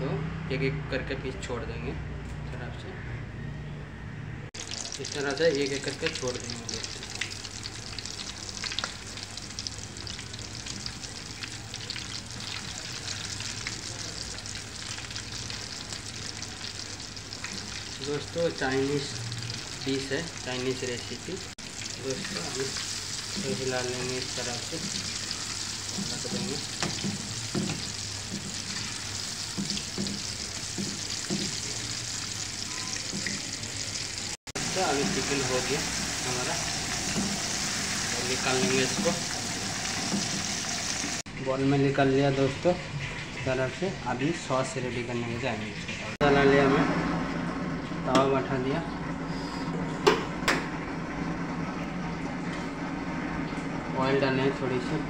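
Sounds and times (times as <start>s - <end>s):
chicken deep-frying in oil: 4.6s - 47.2s.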